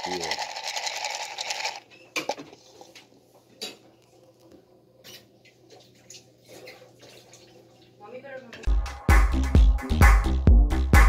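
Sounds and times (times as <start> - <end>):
plastic cups clicking: 0.0 - 2.5.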